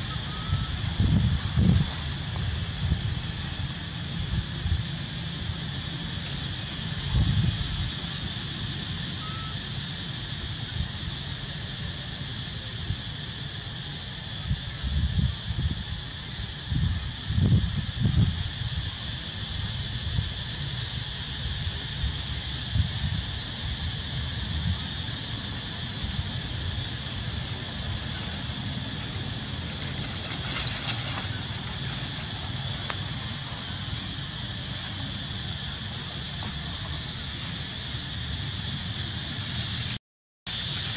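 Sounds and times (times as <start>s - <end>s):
wind gusts on microphone: 0.0s - 40.0s
outdoor background hiss: 0.0s - 40.9s
faint short whistle: 0.1s - 0.7s, 9.2s - 9.6s
dry leaves crackling: 24.2s - 40.9s.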